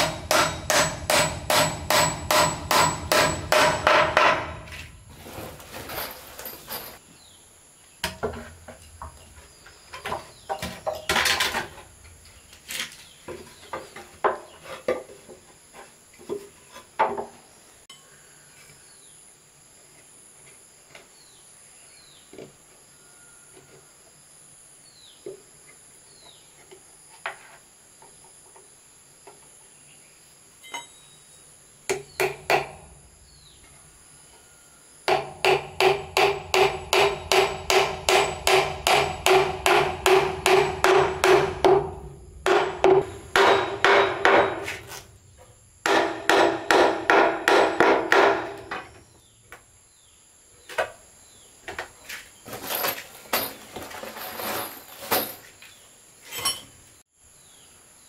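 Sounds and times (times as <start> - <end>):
hammer striking wood: 0.0 - 4.8, 31.9 - 32.8, 35.1 - 44.8, 45.8 - 48.8.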